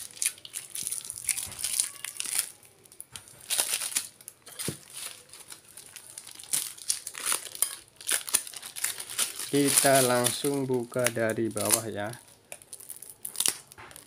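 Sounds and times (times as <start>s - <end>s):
packing tape and paper tearing: 3.2s - 14.0s.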